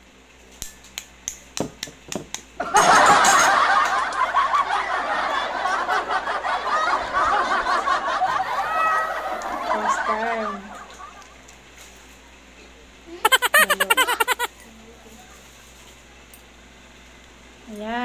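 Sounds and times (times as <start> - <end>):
loud continuous laughter: 2.6 - 11.4, 13.2 - 14.5.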